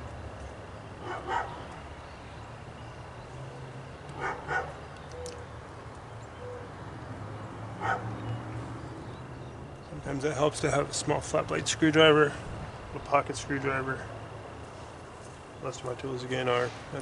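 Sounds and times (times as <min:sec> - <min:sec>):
dog barking: 0:01.0 - 0:01.6, 0:04.2 - 0:04.8, 0:07.8 - 0:08.1.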